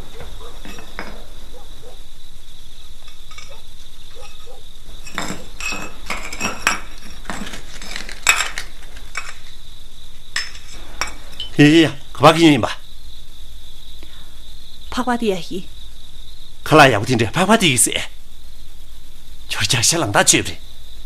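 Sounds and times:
plate scraping on concrete floor: 0:03.0 - 0:09.5.

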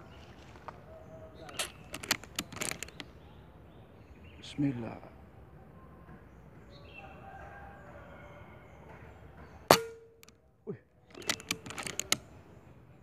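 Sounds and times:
clicks and rattles: 0:01.4 - 0:03.1, 0:11.1 - 0:12.4.

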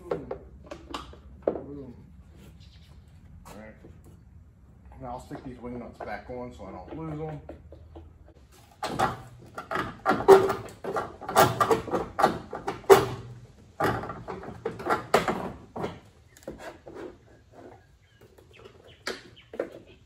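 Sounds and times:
metal parts clattering on sheet metal: 0:08.8 - 0:16.0.

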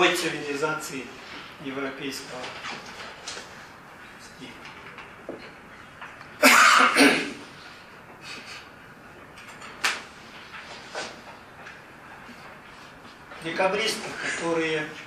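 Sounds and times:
person coughing: 0:06.4 - 0:07.4.

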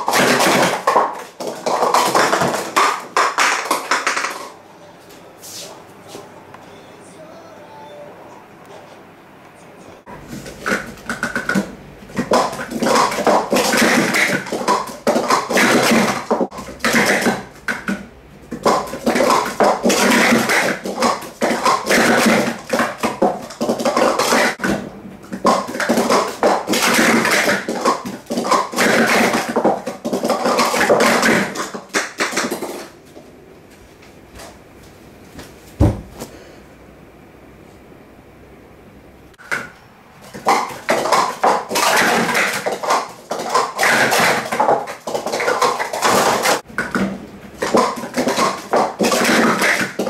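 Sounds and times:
plastic cups clattering on a mat: 0:00.0 - 0:04.6, 0:10.2 - 0:33.0, 0:39.4 - 0:50.0.

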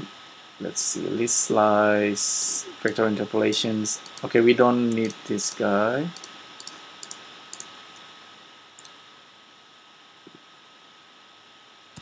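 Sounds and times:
faint high hum: 0:00.0 - 0:12.0
microphone hiss: 0:00.0 - 0:12.0
computer mouse clicks: 0:04.0 - 0:04.3, 0:04.9 - 0:05.2, 0:06.2 - 0:08.1.

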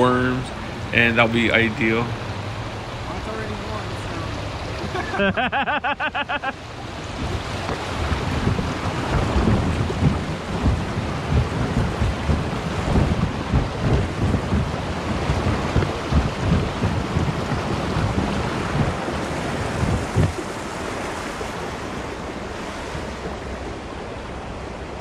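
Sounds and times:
water rushing through a chute: 0:00.0 - 0:25.0
kayak thumping: 0:07.2 - 0:20.7.

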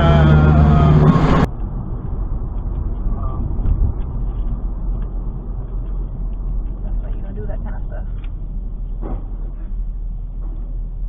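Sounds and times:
loud pitched tone: 0:00.0 - 0:01.5
car road and engine rumble: 0:00.0 - 0:11.0.

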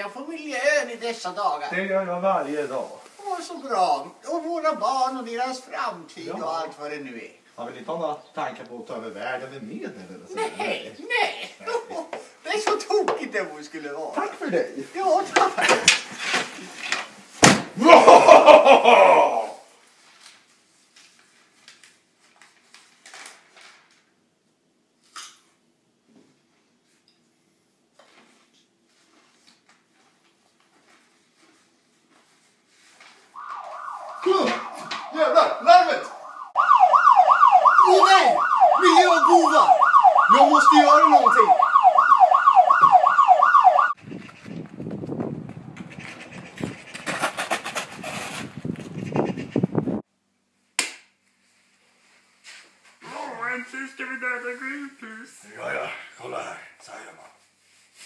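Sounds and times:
falling pitched tone: 0:33.4 - 0:43.9
siren wailing: 0:33.4 - 0:44.0.

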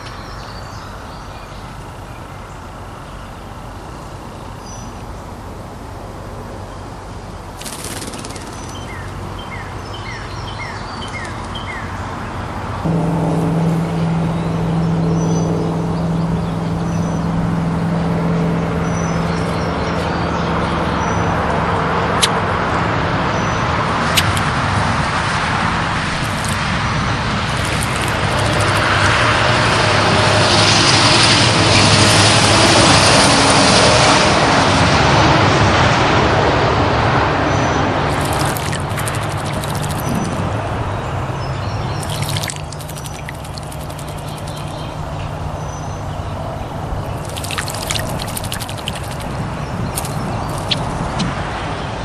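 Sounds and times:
vehicle engine droning: 0:12.0 - 0:52.0
vehicle passing by: 0:12.6 - 0:52.0.

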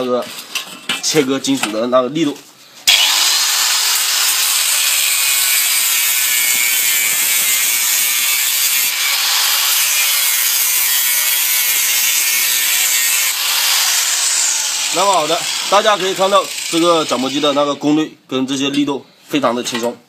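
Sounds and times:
angle grinder cutting metal: 0:02.9 - 0:17.9.

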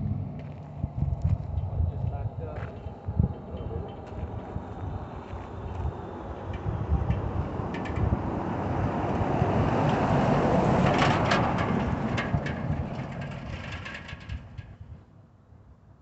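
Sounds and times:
pickup truck driving past: 0:00.0 - 0:01.7, 0:04.1 - 0:13.8.

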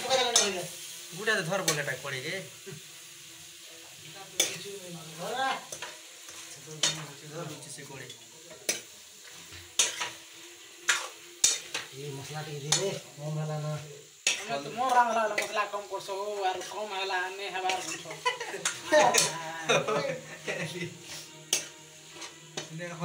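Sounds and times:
frying sizzle: 0:00.0 - 0:23.0
metal spoon scraping pan: 0:08.1 - 0:10.2, 0:10.8 - 0:11.9, 0:14.2 - 0:15.6, 0:20.4 - 0:22.7.

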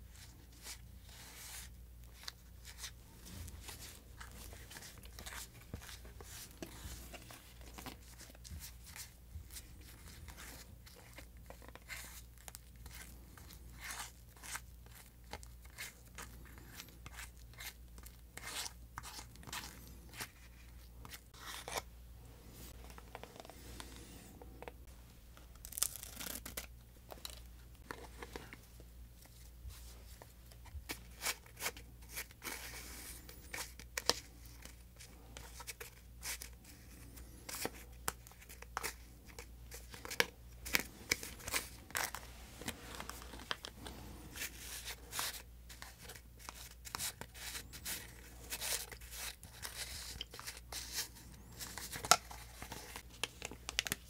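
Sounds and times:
paper and plastic packets tearing: 0:25.6 - 0:27.4.

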